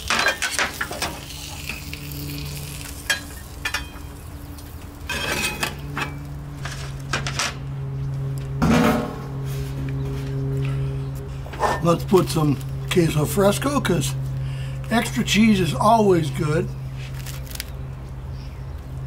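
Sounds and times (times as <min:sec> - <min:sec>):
oil sizzling: 0:00.0 - 0:06.3
steady low hum: 0:00.0 - 0:19.0
metal spatula scraping griddle: 0:05.1 - 0:07.0.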